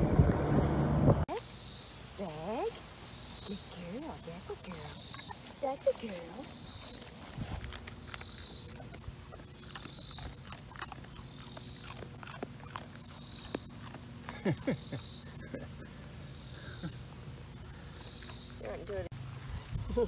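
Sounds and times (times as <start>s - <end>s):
insect calling in high pulses: 8.0s - 13.9s, 14.6s - 18.7s.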